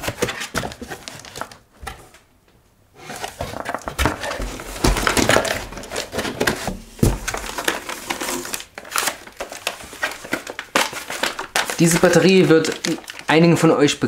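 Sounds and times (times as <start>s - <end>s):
cardboard scraping and rustling: 0.0s - 2.1s, 3.0s - 13.3s
heavy thumps: 3.9s - 7.8s.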